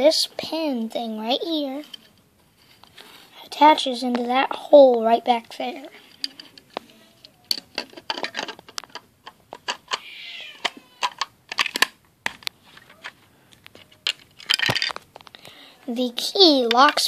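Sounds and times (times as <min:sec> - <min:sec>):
plastic bricks clicking: 0:06.2 - 0:10.0, 0:10.6 - 0:15.3.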